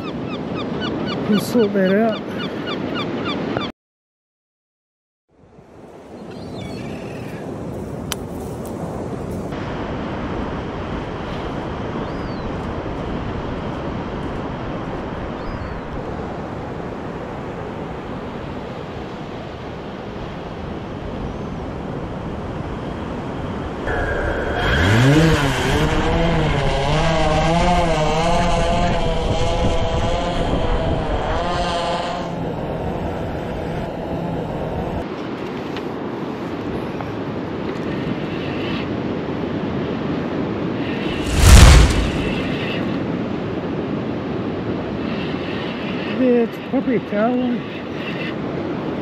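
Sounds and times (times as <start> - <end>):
wind: 0.0 - 3.7, 5.3 - 49.0
drone propeller buzz: 23.9 - 32.3
surf: 41.0 - 42.8.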